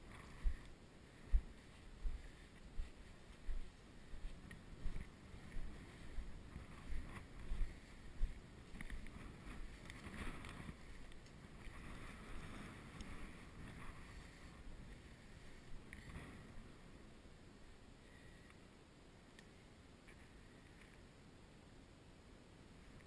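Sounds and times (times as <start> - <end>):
footsteps in loose sand: 0.0 - 17.0
steady rustle: 0.0 - 18.7.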